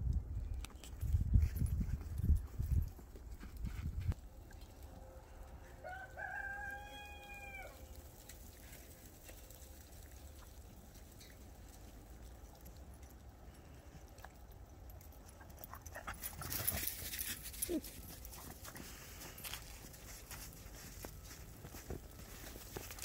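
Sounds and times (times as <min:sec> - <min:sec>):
rooster crowing: 0:05.7 - 0:07.8
footsteps crunching through snow: 0:18.5 - 0:23.0.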